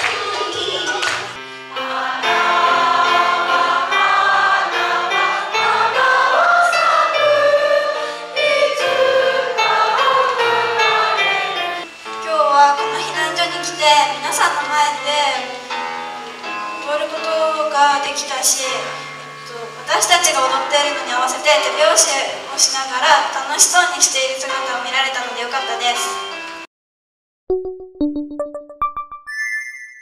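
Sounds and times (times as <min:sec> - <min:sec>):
dance music: 0:00.0 - 0:03.0
girls singing together: 0:01.8 - 0:11.8.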